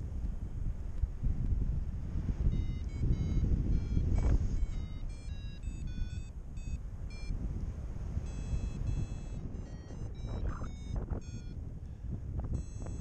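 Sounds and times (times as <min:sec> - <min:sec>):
wind rushing on microphone: 0:00.0 - 0:13.0
variometer beeping: 0:02.4 - 0:07.5, 0:08.2 - 0:13.0.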